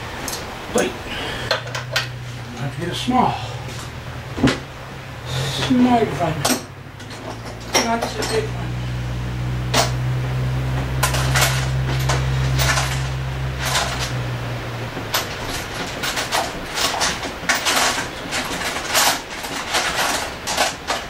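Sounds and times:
low machine hum: 0:00.0 - 0:21.0
metal tools clinking: 0:01.4 - 0:02.8, 0:05.4 - 0:09.0, 0:10.9 - 0:14.2, 0:15.0 - 0:21.0.

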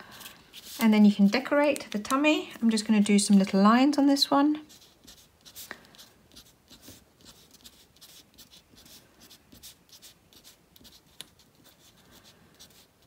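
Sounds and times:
pen scratching on paper: 0:04.6 - 0:13.0.

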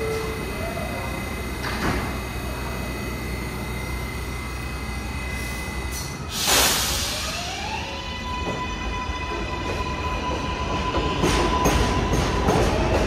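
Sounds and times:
subway train rumble: 0:00.0 - 0:13.0
air hiss: 0:05.4 - 0:07.4.

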